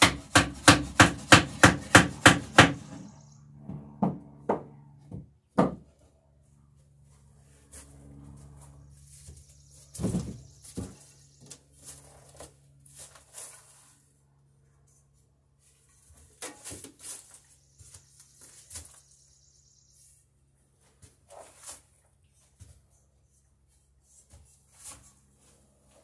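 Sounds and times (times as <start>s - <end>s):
steady low hum: 0.0s - 16.4s.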